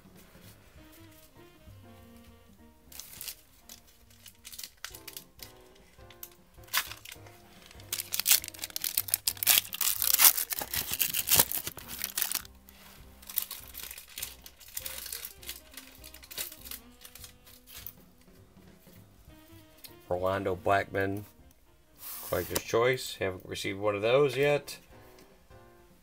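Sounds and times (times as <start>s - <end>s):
quiet background music: 0.0s - 26.0s
foil wrapper tearing and crinkling: 2.9s - 18.3s.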